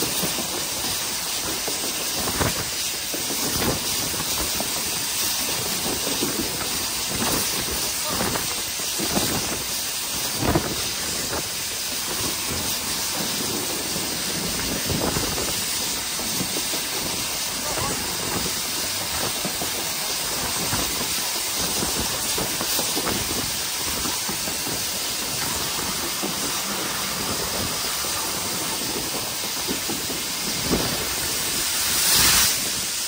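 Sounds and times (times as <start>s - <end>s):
burst of steam hiss: 0.0s - 33.0s
steam locomotive running: 0.0s - 33.0s.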